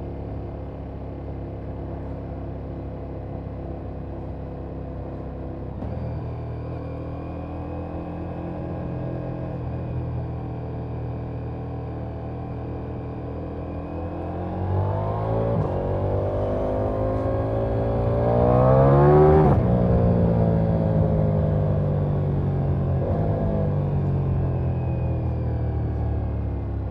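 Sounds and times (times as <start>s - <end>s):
motorcycle engine revving: 14.0s - 24.4s.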